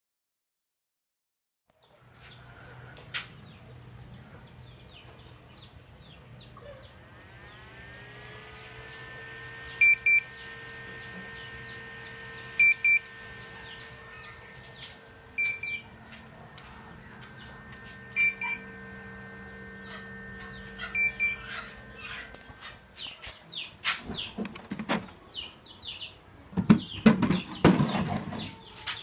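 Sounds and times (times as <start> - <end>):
steady hum rising in pitch: 1.8 - 24.4
electronic buzzer double beeps: 9.7 - 16.1, 17.4 - 22.3.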